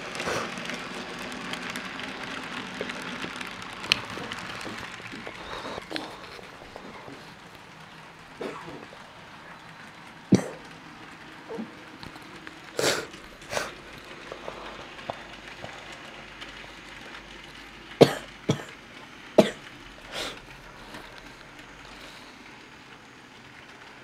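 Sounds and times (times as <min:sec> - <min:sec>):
faint steady background noise: 0:00.0 - 0:24.0
person coughing: 0:08.4 - 0:08.9, 0:10.3 - 0:10.7, 0:18.0 - 0:18.8, 0:19.4 - 0:19.6.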